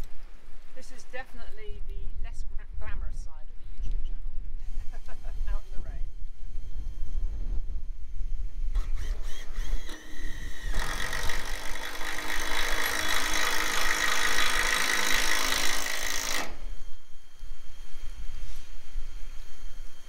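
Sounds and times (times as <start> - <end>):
wind rumbling on microphone: 0.0 - 11.7
cordless drill driving a screw: 8.7 - 17.1.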